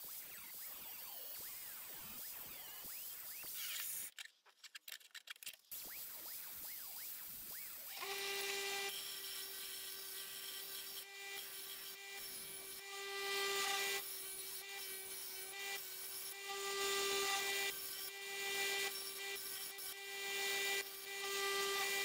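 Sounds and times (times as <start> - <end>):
electric grinder motor hum: 7.9 - 22.0.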